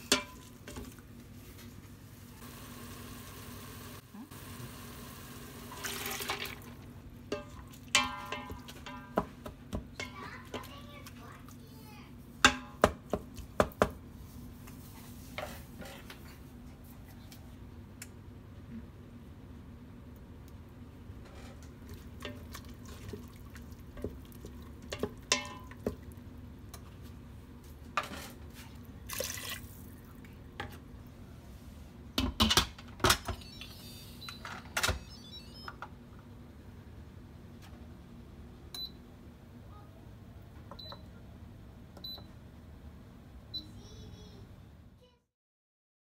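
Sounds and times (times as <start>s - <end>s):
water pouring into pot: 5.6s - 6.8s, 29.1s - 29.8s.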